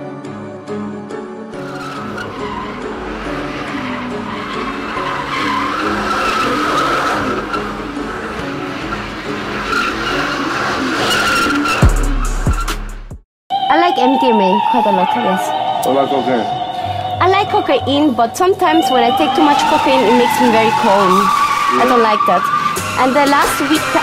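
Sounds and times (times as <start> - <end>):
tires screeching: 1.5 - 13.0, 14.3 - 24.0
car engine revving: 1.6 - 13.2, 15.7 - 24.0.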